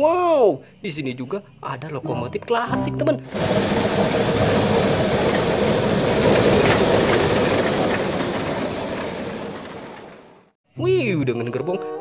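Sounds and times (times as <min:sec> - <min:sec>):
steam locomotive exhaust beats: 0:03.3 - 0:10.4.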